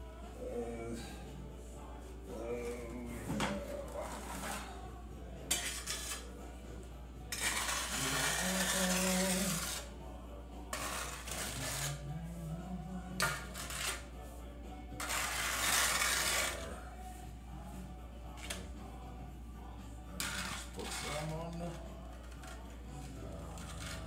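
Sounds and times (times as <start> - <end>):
trowel scraping mortar: 3.7 - 4.8, 5.5 - 6.4, 7.3 - 10.0, 10.7 - 12.1, 13.2 - 14.1, 14.9 - 16.8, 20.2 - 24.0.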